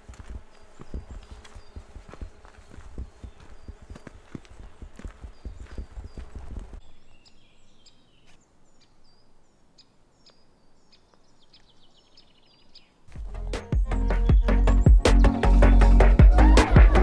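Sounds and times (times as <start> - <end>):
footsteps on gravel: 0.0 - 6.8
small birds chirping: 0.0 - 16.6
loud music: 13.3 - 17.0.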